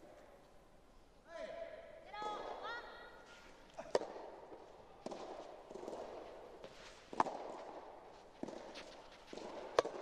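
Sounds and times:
rackets hitting tennis ball: 0:02.3 - 0:10.0
shoes scuffing on court: 0:05.1 - 0:10.0.

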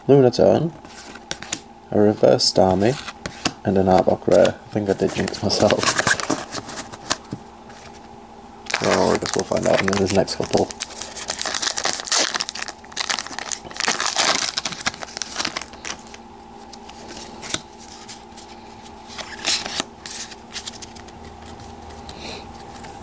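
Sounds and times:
cards rustling: 0:00.8 - 0:08.1, 0:08.7 - 0:23.0
foil wrapper crinkling and tearing: 0:08.7 - 0:16.2.

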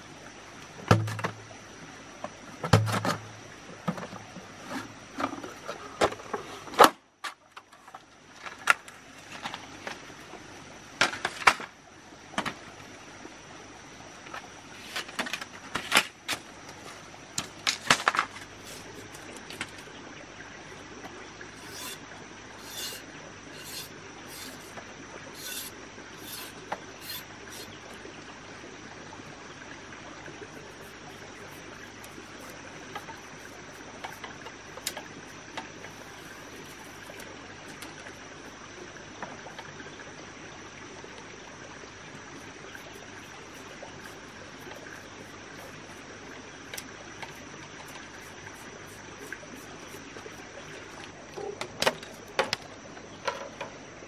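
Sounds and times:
faint steady high whine: 0:00.0 - 0:54.0
knocks taps and scrapes of hand work: 0:21.6 - 0:22.0, 0:22.6 - 0:23.0, 0:23.6 - 0:24.8.

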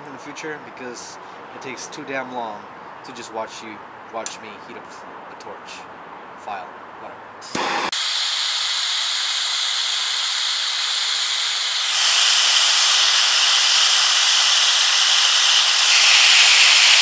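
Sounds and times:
torch flame hissing: 0:07.4 - 0:17.0.

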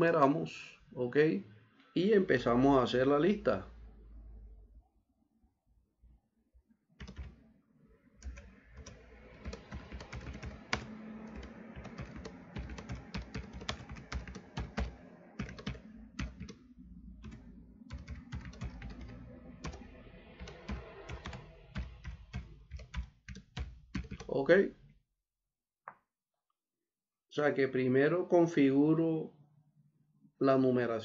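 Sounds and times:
computer keyboard typing: 0:07.0 - 0:07.4, 0:08.2 - 0:16.6, 0:17.2 - 0:19.8, 0:20.4 - 0:24.3.

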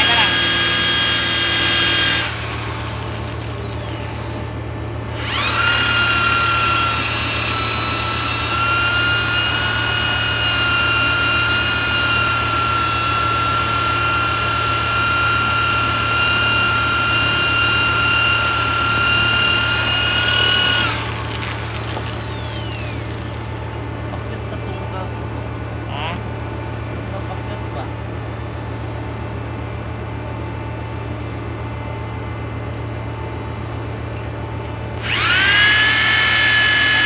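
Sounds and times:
power tool whining: 0:00.0 - 0:23.8, 0:35.0 - 0:37.0
steady low hum: 0:00.0 - 0:37.0.

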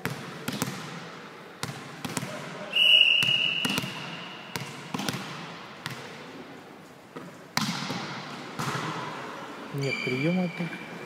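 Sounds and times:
volleyball being hit: 0:00.0 - 0:06.2, 0:07.2 - 0:09.3
ball bouncing on hall floor: 0:00.0 - 0:06.3, 0:07.1 - 0:09.3
referee's whistle blast: 0:02.7 - 0:04.4.

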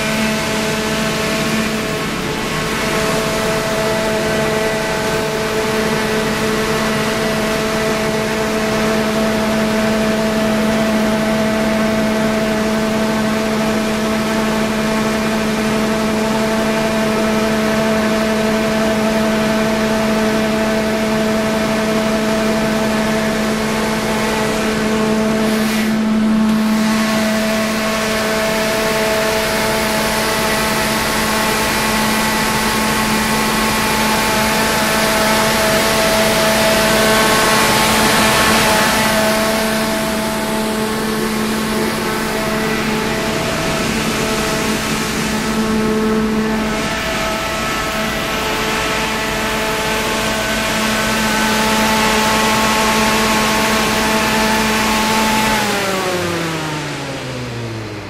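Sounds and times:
generator engine running: 0:00.0 - 0:58.0.

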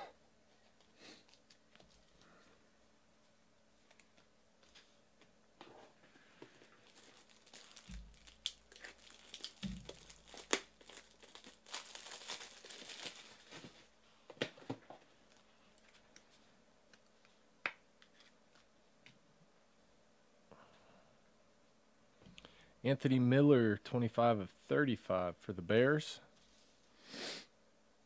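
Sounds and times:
wrapper tearing and crinkling: 0:06.7 - 0:13.9.

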